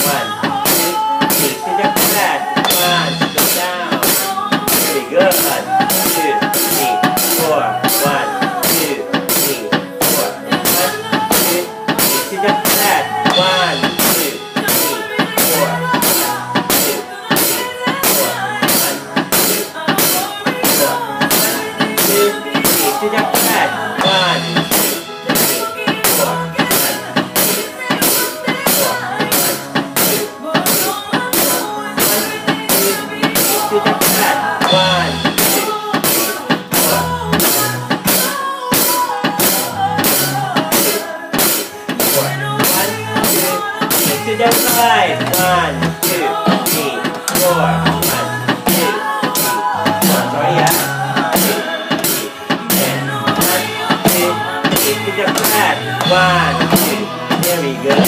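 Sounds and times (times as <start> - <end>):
electronic drum beat: 0.0 - 58.0
recorded song with melody: 0.0 - 58.0.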